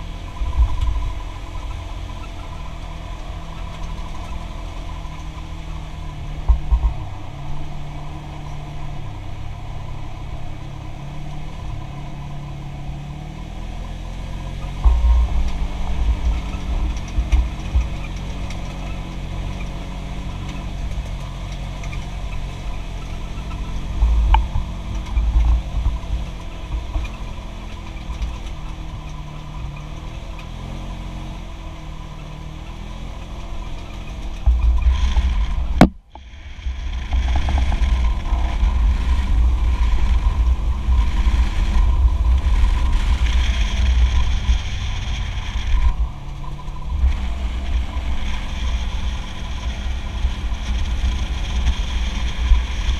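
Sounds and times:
tyres rumbling on dirt: 0.0s - 52.9s
vehicle engine running: 0.0s - 52.9s
wind buffeting: 0.0s - 52.9s.

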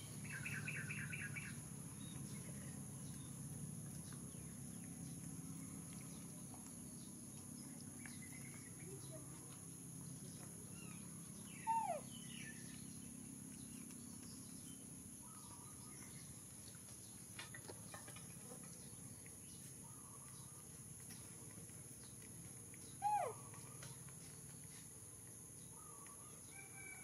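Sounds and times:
bird chirps: 0.0s - 17.2s, 22.8s - 24.8s.

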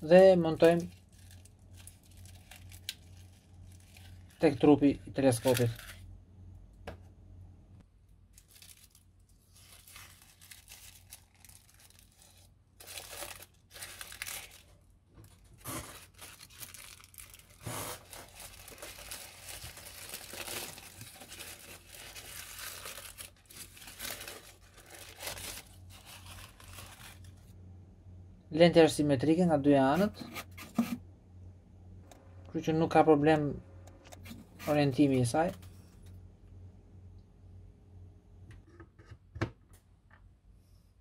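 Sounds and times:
tissue paper crinkling: 0.2s - 4.7s, 5.4s - 6.0s, 8.3s - 27.5s.

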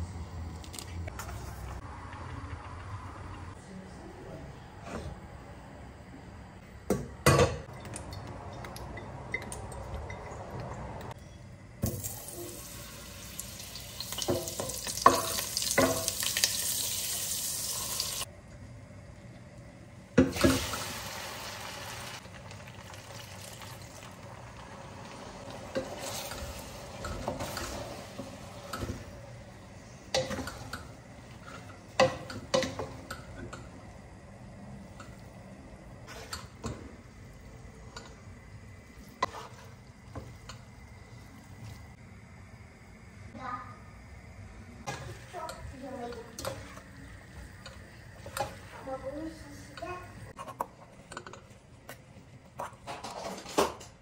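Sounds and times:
pot clanking: 14.0s - 16.4s.

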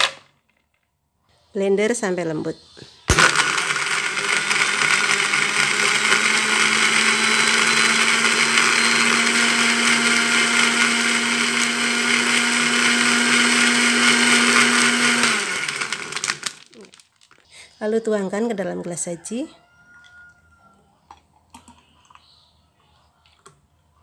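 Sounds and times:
blender crushing ice: 0.0s - 0.3s, 3.1s - 17.3s.

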